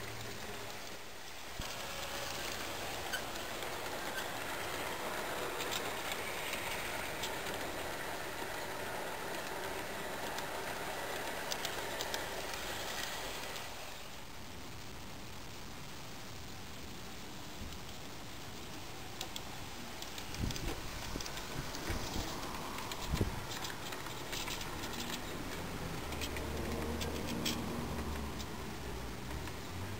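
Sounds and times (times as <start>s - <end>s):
model train wheels rumbling: 0.0s - 14.3s, 17.5s - 29.9s
wheels clicking over rail joints: 1.6s - 13.8s, 19.1s - 29.9s.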